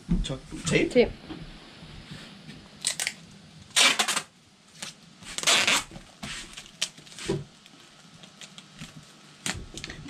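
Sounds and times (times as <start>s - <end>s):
tape ripping off roll: 2.8s - 7.5s.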